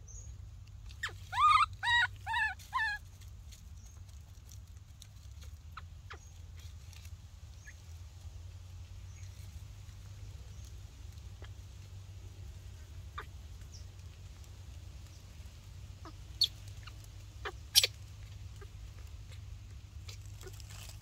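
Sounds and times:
low steady hum: 0:00.0 - 0:21.0
animal short pitched calls: 0:01.0 - 0:03.0.

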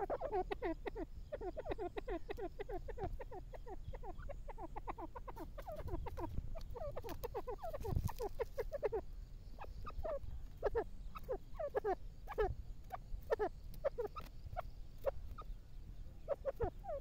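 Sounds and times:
francolin calling: 0:00.0 - 0:17.0.

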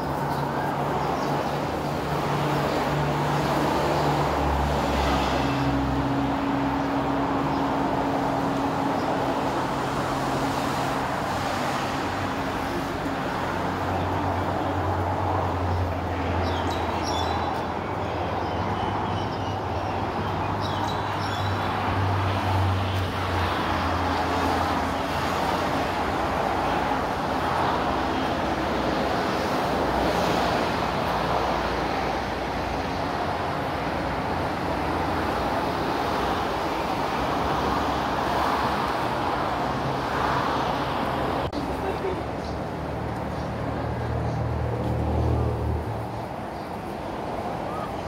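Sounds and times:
road traffic rushing: 0:00.0 - 0:48.0.

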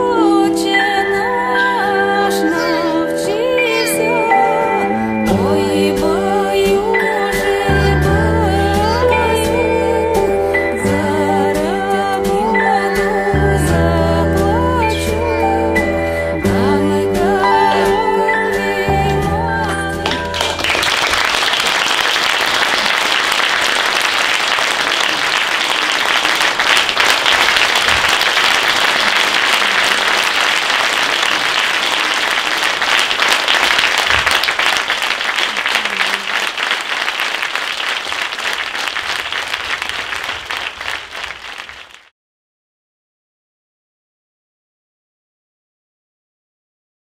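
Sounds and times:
audience applauding: 0:02.5 - 0:02.9, 0:19.1 - 0:42.1.

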